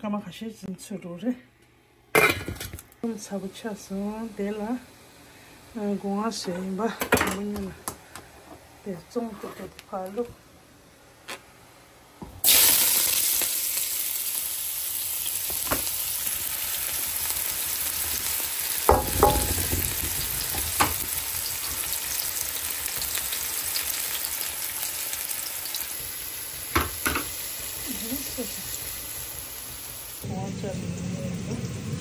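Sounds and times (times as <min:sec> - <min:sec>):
onions sizzling in hot oil: 0:12.4 - 0:32.0
metal knocks against pan: 0:18.9 - 0:20.0.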